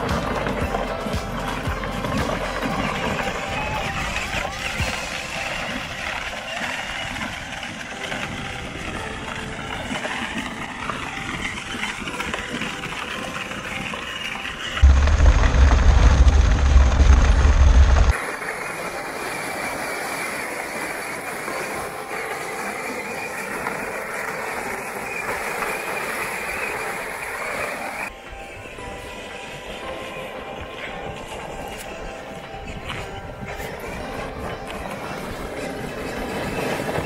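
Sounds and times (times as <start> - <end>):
wheels crunching on gravel: 0.0 - 37.0
toy truck electric motors running: 2.4 - 15.7
loud low rumble: 14.8 - 18.1.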